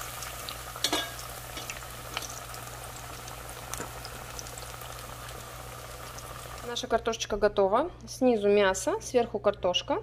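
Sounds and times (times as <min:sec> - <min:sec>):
oil sizzling around frying potatoes: 0:00.0 - 0:07.4.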